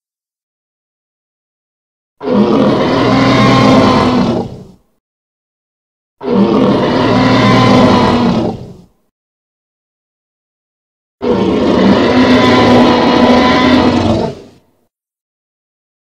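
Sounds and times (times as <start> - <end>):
dinosaur roar: 2.2 - 4.8, 6.2 - 8.9, 11.2 - 14.6.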